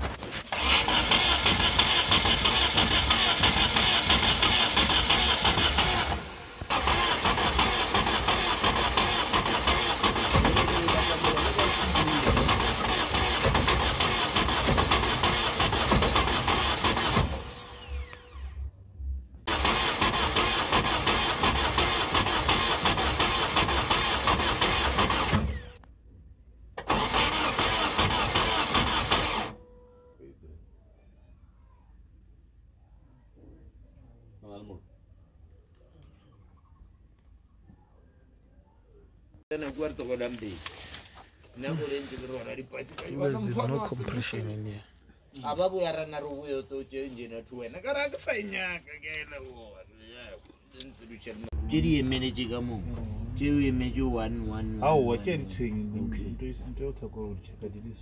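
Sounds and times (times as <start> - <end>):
car engine cranking on starter: 0.1 - 18.6, 19.5 - 25.8, 26.7 - 29.8.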